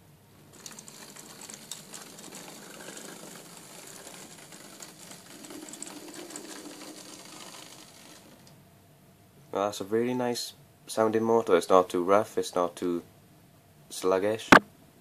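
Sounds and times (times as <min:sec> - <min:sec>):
wheels clicking on track: 0:00.5 - 0:08.5
model locomotive motor running: 0:00.6 - 0:08.5.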